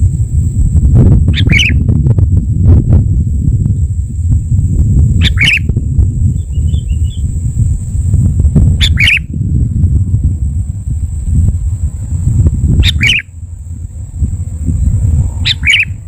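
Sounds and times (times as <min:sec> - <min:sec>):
low rumble: 0:00.0 - 0:16.0
bird calls: 0:01.3 - 0:01.8, 0:05.2 - 0:07.3, 0:08.8 - 0:09.3, 0:12.7 - 0:13.4, 0:14.9 - 0:16.0
faint bird chirps: 0:01.3 - 0:01.8, 0:05.2 - 0:07.3, 0:08.8 - 0:09.3, 0:12.8 - 0:13.3, 0:14.8 - 0:16.0.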